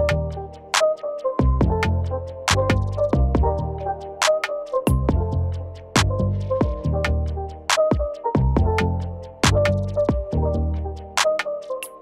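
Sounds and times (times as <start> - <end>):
deep bass kicks: 0.0 - 0.4, 1.4 - 3.8, 4.9 - 7.4, 8.4 - 10.9
hi-hat and snare hits: 0.0 - 10.4, 11.0 - 12.0.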